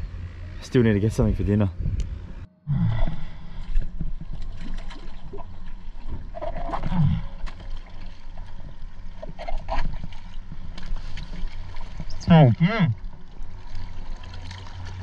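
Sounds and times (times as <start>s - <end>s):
low rumble: 0.0s - 15.0s
water sloshing and splashing: 3.0s - 15.0s.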